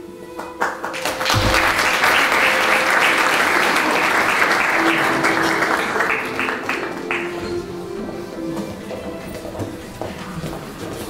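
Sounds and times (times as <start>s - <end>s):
audience applauding: 0.3s - 7.8s
low thump: 1.3s - 1.9s.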